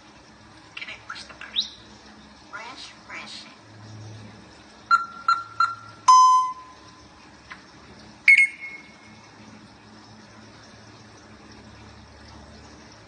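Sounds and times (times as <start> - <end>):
parrot whistling beeps: 4.9 - 6.8, 8.3 - 9.0.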